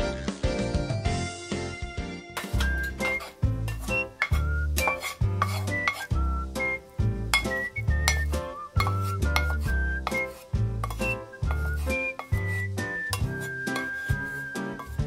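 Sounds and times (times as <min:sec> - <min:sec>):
background music with steady beat: 0:00.0 - 0:15.0
dishes and cutlery clinking: 0:02.4 - 0:06.2, 0:07.3 - 0:15.0.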